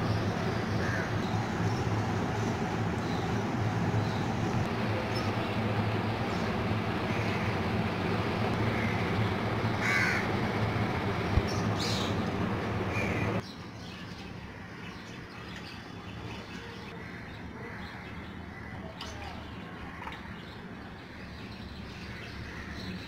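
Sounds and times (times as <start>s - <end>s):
steady background hum: 0.0s - 23.0s
crow cawing: 0.8s - 1.2s, 7.1s - 7.5s, 8.7s - 9.1s, 9.8s - 10.8s, 12.9s - 13.3s.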